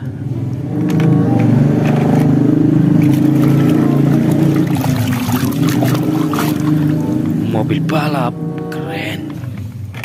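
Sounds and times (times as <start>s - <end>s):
steady low hum: 2.4s - 9.8s
water sloshing in a plastic tub: 2.9s - 7.4s.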